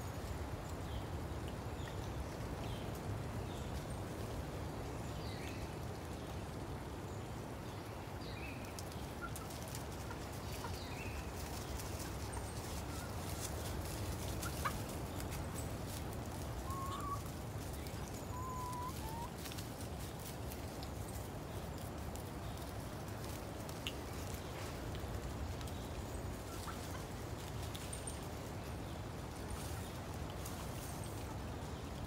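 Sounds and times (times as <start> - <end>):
hens clucking: 8.8 - 15.3, 16.6 - 17.3, 18.0 - 19.6.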